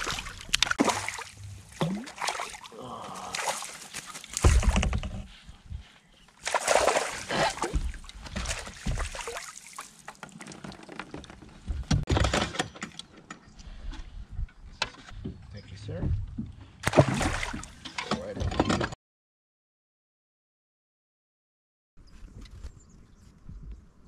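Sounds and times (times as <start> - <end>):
water splashing and sloshing: 0.0 - 14.0, 16.0 - 18.8
net knocking against kayak: 4.3 - 5.3.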